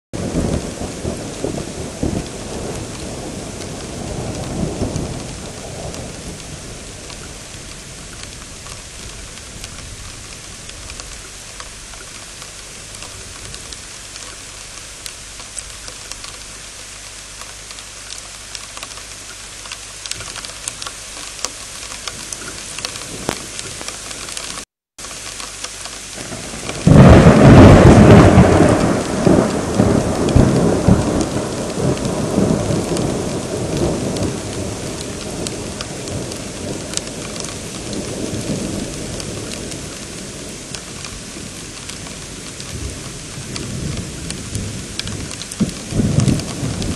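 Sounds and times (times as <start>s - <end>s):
heavy rain falling: 0.1s - 46.9s
loud thunderclap: 0.2s - 10.8s, 26.2s - 46.9s
thunder rumbling: 0.2s - 16.4s, 22.1s - 24.4s, 26.1s - 46.9s.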